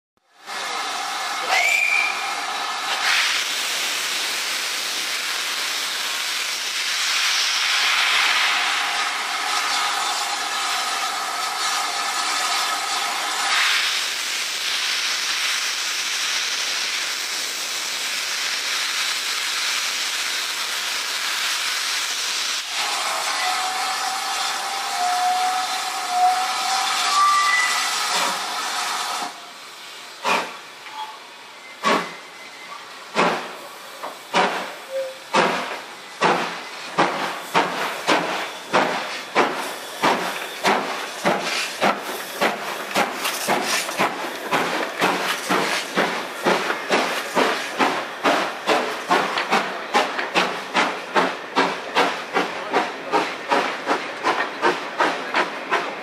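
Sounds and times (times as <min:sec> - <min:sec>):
steam locomotive hissing: 0:00.4 - 0:56.0
short rising steam whistle: 0:00.7 - 0:03.5, 0:22.6 - 0:29.5, 0:30.8 - 0:32.8, 0:34.8 - 0:35.3.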